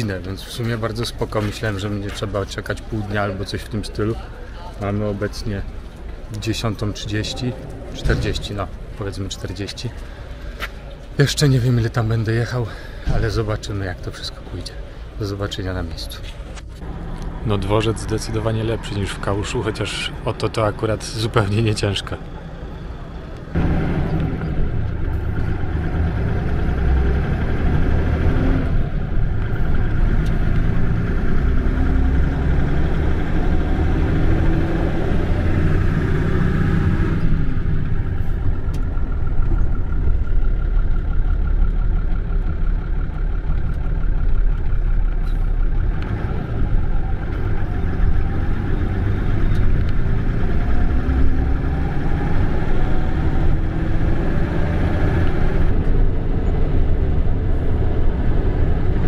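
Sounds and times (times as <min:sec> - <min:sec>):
bus engine accelerating: 0:00.0 - 0:59.0.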